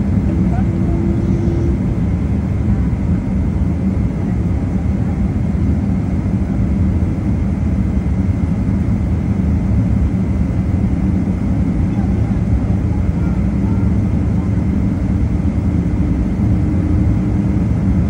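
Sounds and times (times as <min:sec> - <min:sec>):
faint high whine: 0:00.0 - 0:02.9
jet engine rumble: 0:00.0 - 0:18.0.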